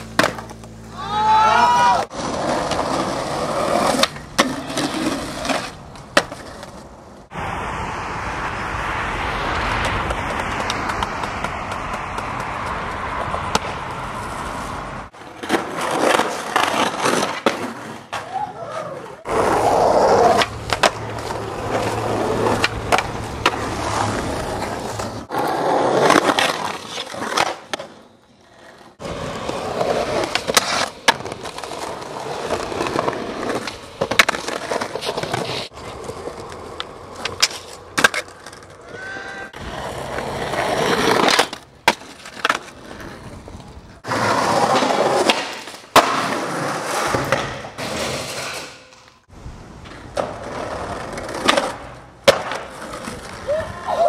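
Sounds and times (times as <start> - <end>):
skateboard pops and landings: 0.0 - 0.8, 2.0 - 6.9, 9.4 - 14.3, 19.3 - 28.0, 29.0 - 35.7, 36.4 - 43.1, 44.0 - 49.2, 49.8 - 53.6
skateboard wheels rolling on concrete: 0.0 - 54.0
skateboard scraping on ledges: 1.6 - 7.5, 9.2 - 53.7.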